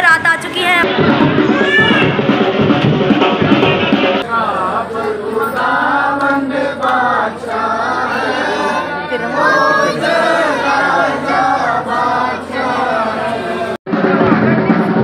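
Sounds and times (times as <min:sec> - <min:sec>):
crowd din: 0:00.0 - 0:15.0
many voices singing together: 0:04.0 - 0:15.0.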